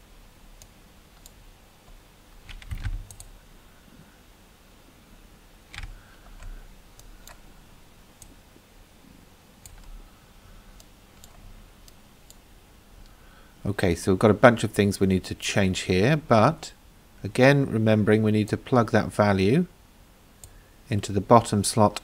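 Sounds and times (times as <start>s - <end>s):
mouse and keyboard clicks: 5.7s - 7.4s.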